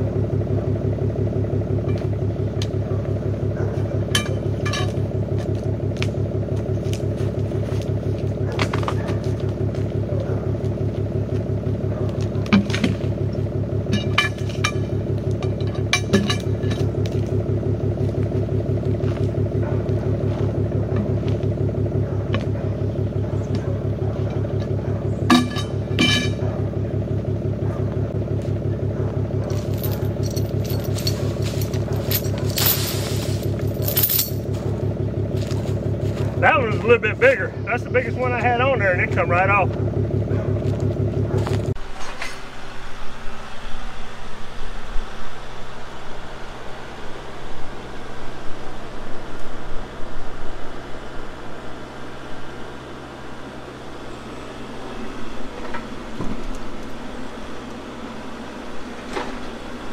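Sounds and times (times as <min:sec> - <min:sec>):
engine idling: 0:00.0 - 0:59.9
tire and road noise: 0:00.0 - 0:59.9
metal hook clanks: 0:04.1 - 0:05.0, 0:13.9 - 0:16.9, 0:24.3 - 0:26.4.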